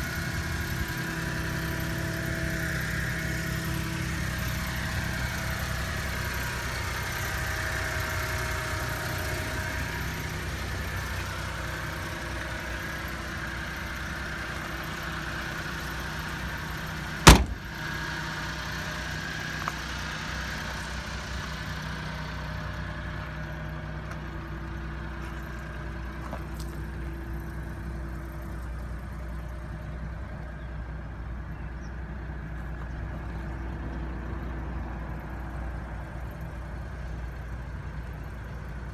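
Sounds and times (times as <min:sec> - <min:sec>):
truck engine idling: 0:00.0 - 0:38.9
door slamming shut: 0:17.3 - 0:17.8.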